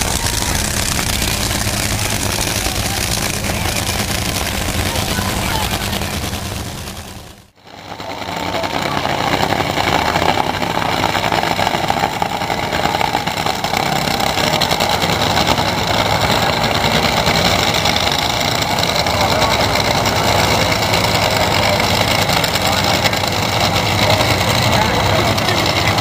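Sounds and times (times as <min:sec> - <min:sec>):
dragster engines idling: 0:00.0 - 0:26.0.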